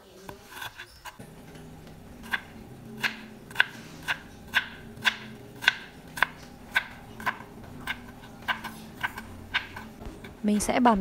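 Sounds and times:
knife chopping on plastic board: 0:02.2 - 0:10.4.

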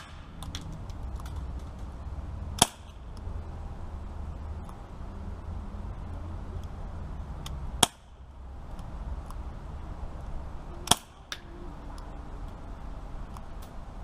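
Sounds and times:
air pistol shots: 0:00.0 - 0:00.4.

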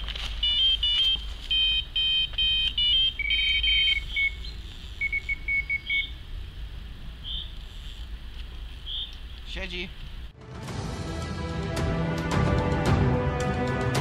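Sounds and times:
electronic bite alarm beeping: 0:00.4 - 0:06.2.

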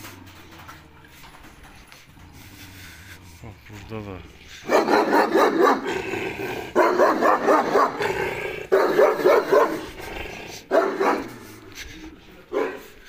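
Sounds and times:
dog barking: 0:04.6 - 0:06.1, 0:06.7 - 0:10.0, 0:10.6 - 0:11.6, 0:12.5 - 0:13.0.

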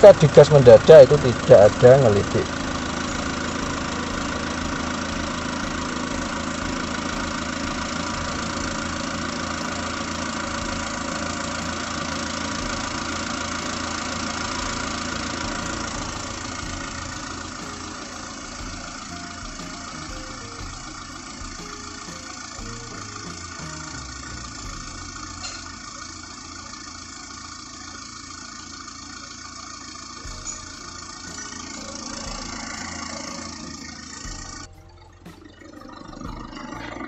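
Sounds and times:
car engine idling: 0:00.0 - 0:37.0.

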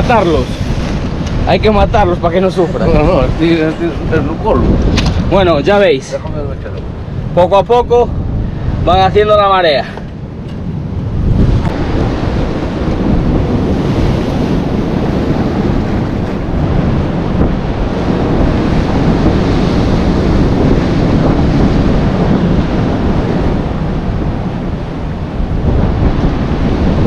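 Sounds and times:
sea surf breaking on rocks: 0:00.0 - 0:27.0
wind buffeting microphone: 0:00.0 - 0:27.0.

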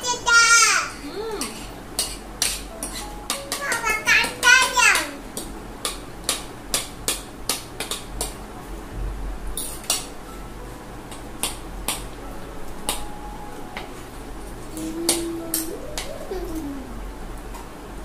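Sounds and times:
cutlery clicking against plates: 0:01.4 - 0:04.4, 0:05.4 - 0:08.4, 0:09.6 - 0:10.1, 0:11.1 - 0:12.2.

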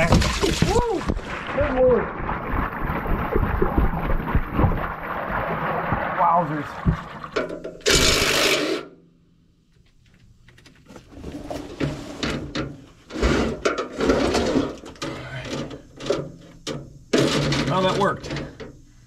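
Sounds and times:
oil gushing into pan: 0:00.0 - 0:07.6.

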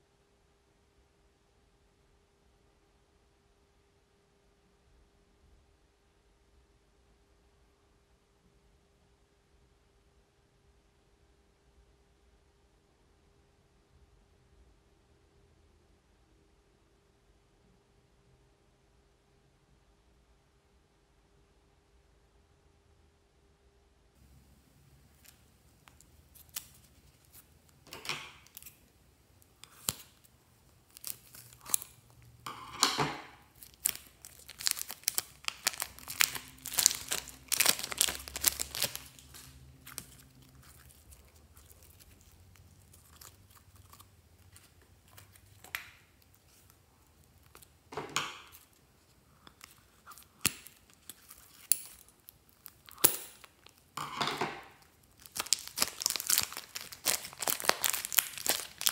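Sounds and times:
plastic film crinkling and tearing: 0:25.0 - 0:32.4, 0:33.3 - 0:47.7, 0:48.4 - 0:54.0, 0:54.6 - 0:58.9.

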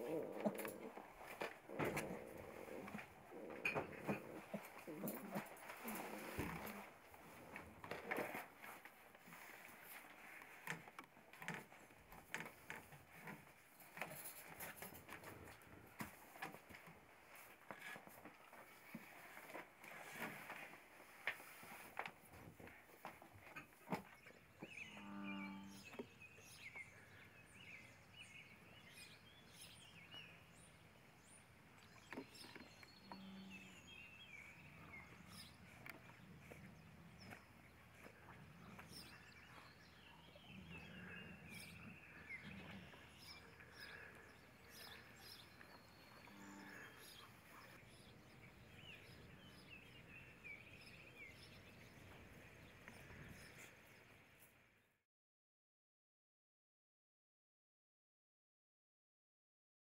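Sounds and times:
small birds chirping: 0:00.0 - 0:54.6
pups rustling on towel and newspaper: 0:04.4 - 0:10.6, 0:15.9 - 0:22.8.

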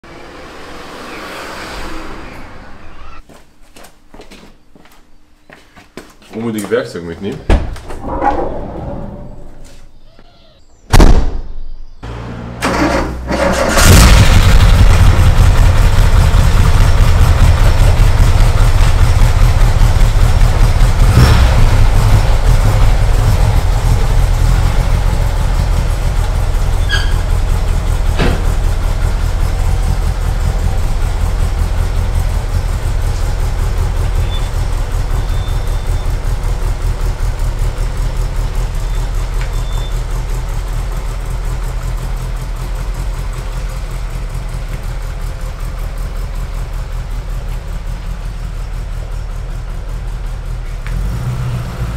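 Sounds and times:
door slamming: 0:07.5 - 0:09.5, 0:10.9 - 0:11.5
engine cranking and idling: 0:12.1 - 0:51.9.

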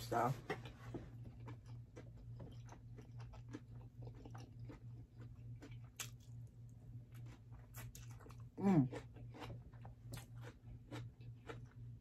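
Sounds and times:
low steady hum: 0:00.0 - 0:12.0
person chewing: 0:00.0 - 0:12.0.

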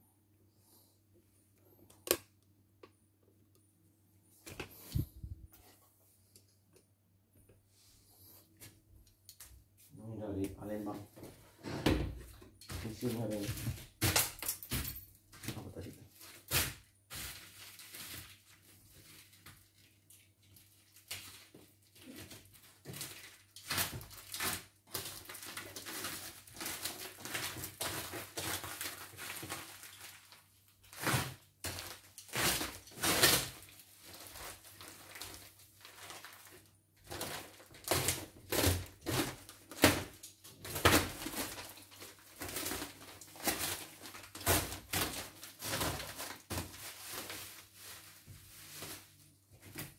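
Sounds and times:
plastic and bubble wrap crinkling: 0:12.3 - 0:14.6, 0:15.2 - 0:49.9.

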